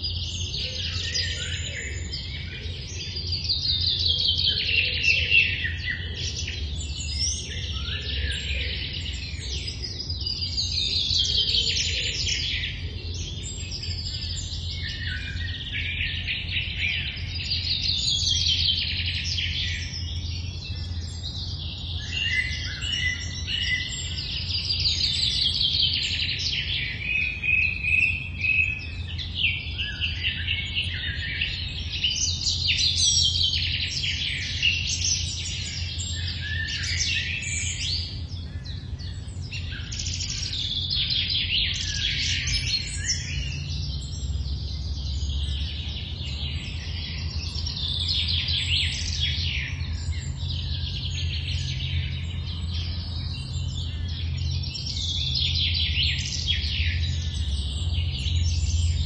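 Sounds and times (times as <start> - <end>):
songbirds singing: 0.0 - 59.0
steady low rumble: 31.4 - 59.0.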